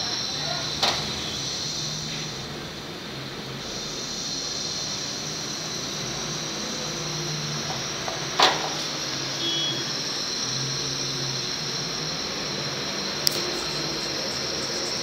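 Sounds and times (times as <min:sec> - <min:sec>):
gas burner flame hissing: 0:00.0 - 0:15.0
sharp click: 0:13.2 - 0:13.5.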